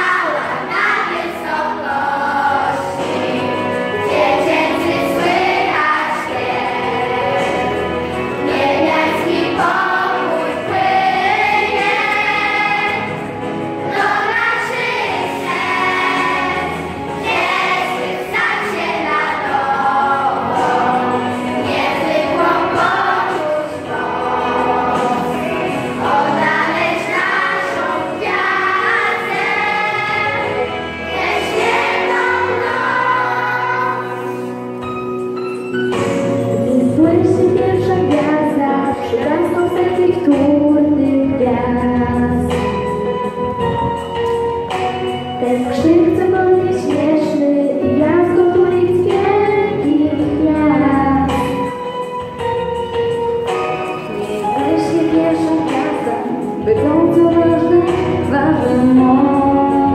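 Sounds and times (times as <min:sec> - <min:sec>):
choir singing a carol: 0:00.0 - 0:34.6.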